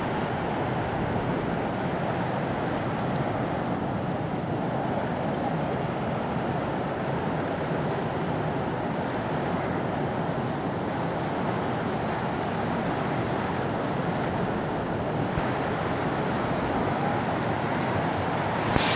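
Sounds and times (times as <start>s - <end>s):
floodwater rushing over ledge: 15.2s - 18.9s.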